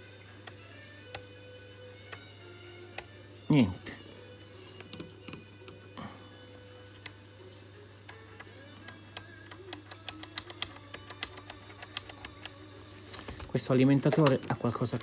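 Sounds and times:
low electrical hum: 0.0s - 15.0s
small irregular clicks: 8.1s - 12.6s.

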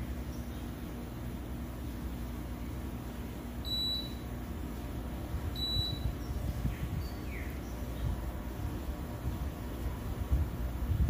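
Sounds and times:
high electronic beeps: 5.6s - 6.0s.

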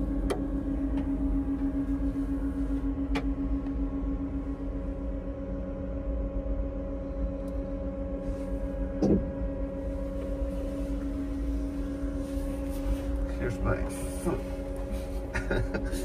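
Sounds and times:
cabin equipment humming: 0.0s - 16.0s.

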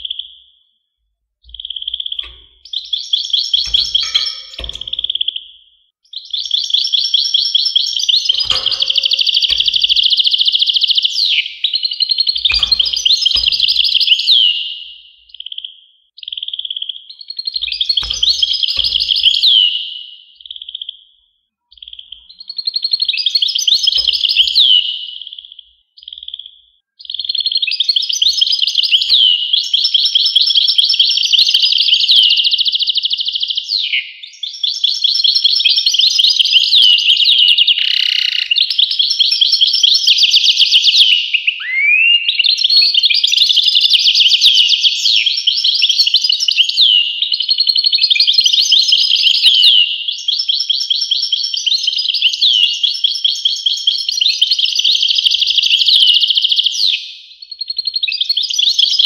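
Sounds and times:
goldfinch singing: 1.4s - 5.5s, 6.1s - 20.7s.

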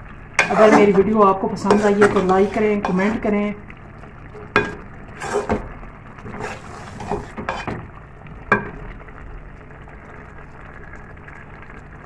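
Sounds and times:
metal spoon scraping metal pot: 0.4s - 3.3s, 4.4s - 5.6s, 6.2s - 7.8s.

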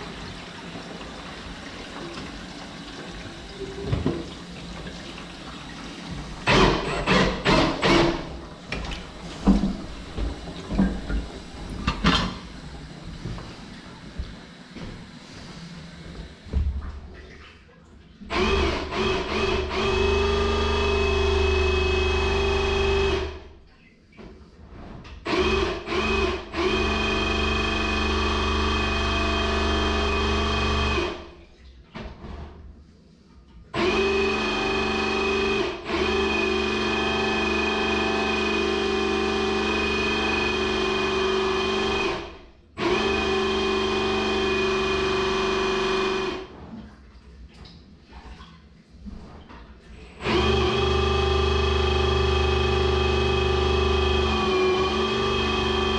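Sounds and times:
drain-cleaning machine motor: 18.3s - 23.5s, 25.3s - 31.4s, 33.8s - 46.7s, 50.1s - 55.9s.

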